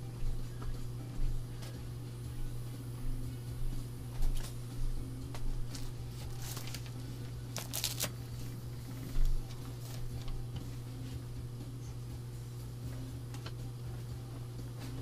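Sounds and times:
steady low hum: 0.0s - 15.0s
rustling: 5.7s - 10.3s.

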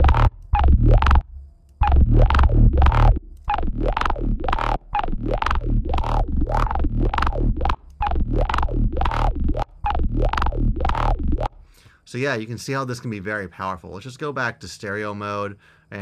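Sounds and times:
glitchy electronic synth loop: 0.0s - 11.6s
ringing filter tone sweeping: 0.0s - 11.6s
pulsing bass: 0.0s - 11.7s.

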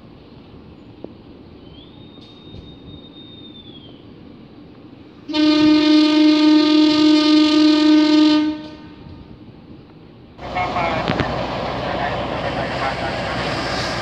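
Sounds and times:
locomotive air horn blast: 5.3s - 9.1s.

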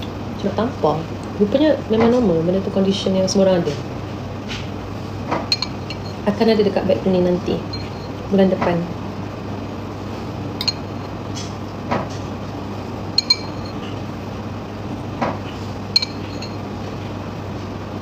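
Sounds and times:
spoon clinking against bowl: 5.5s - 6.2s, 7.7s - 8.2s, 10.6s - 11.1s, 13.2s - 14.0s, 15.9s - 16.7s.

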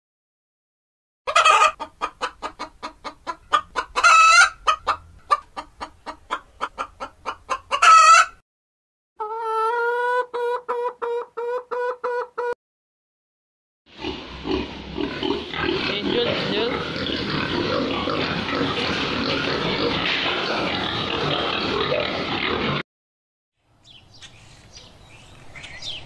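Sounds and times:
hens clucking: 1.3s - 8.4s, 9.2s - 12.6s, 14.5s - 22.8s.

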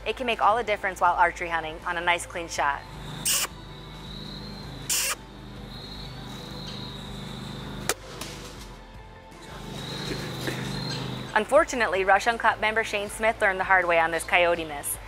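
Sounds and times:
insects buzzing: 2.8s - 8.0s, 9.5s - 11.4s
low hum: 2.8s - 8.1s
short hissing bursts: 3.2s - 3.6s, 4.9s - 5.2s.

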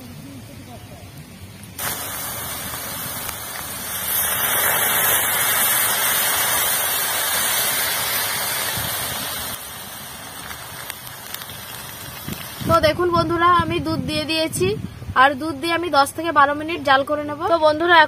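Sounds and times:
carrots sizzling in hot fat: 0.4s - 14.3s.

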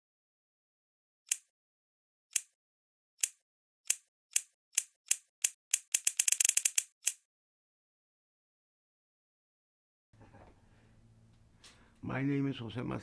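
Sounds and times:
sharp crisp clicks: 3.2s - 7.2s.

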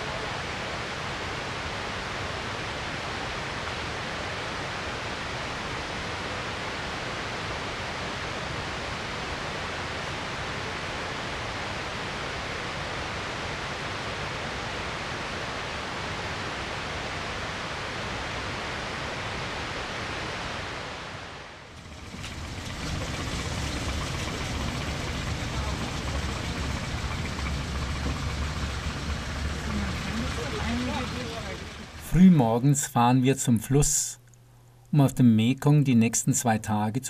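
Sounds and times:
water rushing: 0.0s - 32.7s
low rumble: 21.5s - 32.4s.

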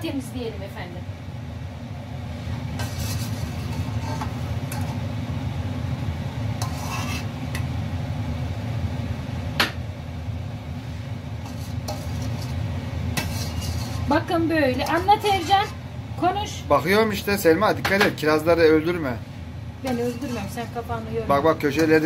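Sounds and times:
jam boiling in a pot: 0.0s - 22.0s
metal spoon scraping and clinking pot: 2.8s - 5.0s, 6.6s - 7.7s, 11.4s - 15.8s, 19.8s - 20.9s.

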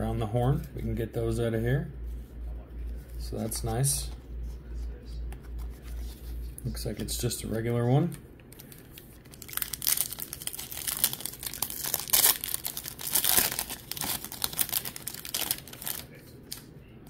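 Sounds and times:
foil wrapper tearing and crinkling: 8.6s - 16.6s.

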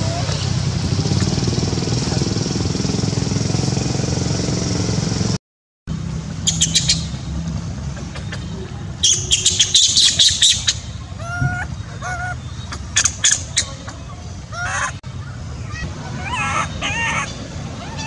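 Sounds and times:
squawking animal calls: 9.0s - 18.0s.

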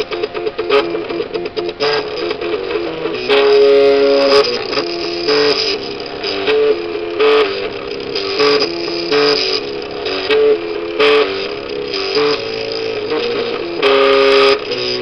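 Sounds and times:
noisy motor bursts: 0.0s - 15.0s
stepper motors whining: 0.0s - 15.0s.

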